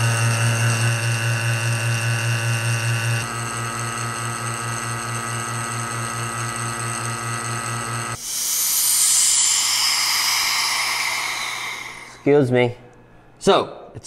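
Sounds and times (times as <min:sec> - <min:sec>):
vacuum pump humming: 0:00.0 - 0:12.4
air rushing hiss: 0:08.2 - 0:12.4.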